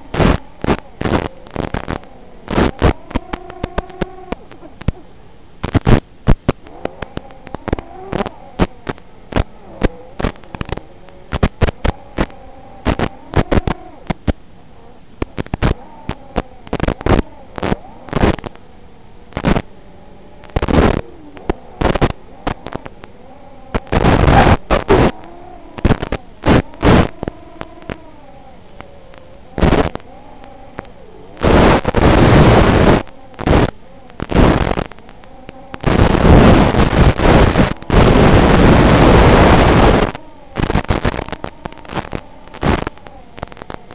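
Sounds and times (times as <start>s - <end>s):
bursts of radio static: 0.0s - 43.9s
drone motors whining: 0.0s - 43.9s
sharp crackles and pops: 0.0s - 43.9s.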